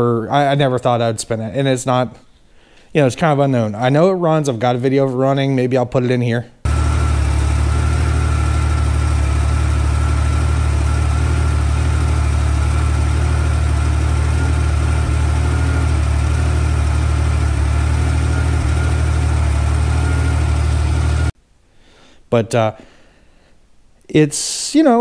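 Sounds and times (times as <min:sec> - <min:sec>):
car engine idling: 0:06.7 - 0:21.4.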